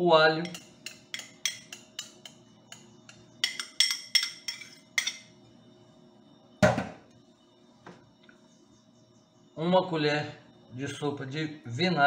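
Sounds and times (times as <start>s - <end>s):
utensil clinking on glass bowl: 0.4s - 5.3s
clunk in metal sink: 6.6s - 7.0s.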